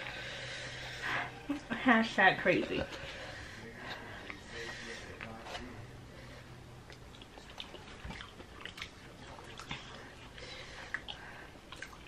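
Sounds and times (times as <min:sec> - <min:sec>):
people chewing food: 0:02.8 - 0:12.0.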